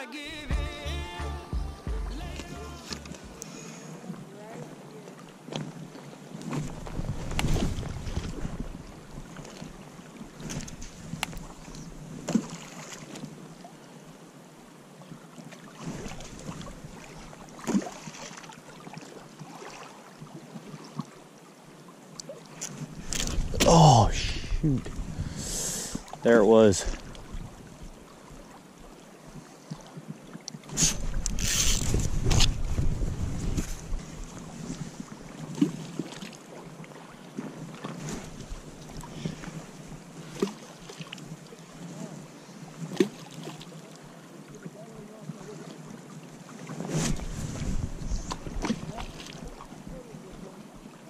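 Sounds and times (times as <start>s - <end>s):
river current rushing: 0.0s - 5.5s, 22.4s - 27.1s
river water rippling over gravel: 2.2s - 23.8s, 24.7s - 51.0s
wind on microphone: 6.6s - 9.0s, 22.9s - 26.0s, 30.7s - 35.2s, 47.0s - 49.0s.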